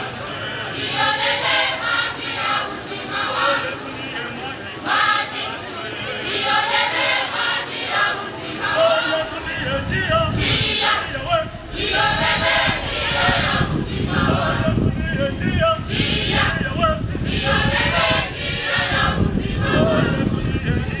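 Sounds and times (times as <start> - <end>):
choir singing a hymn: 0.0 - 21.0
low rumble: 9.6 - 21.0.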